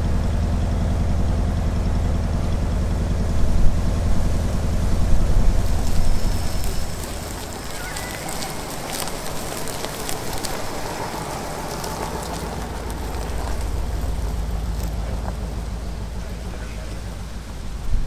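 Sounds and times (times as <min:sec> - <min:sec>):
footsteps on mulch: 0:05.5 - 0:17.3.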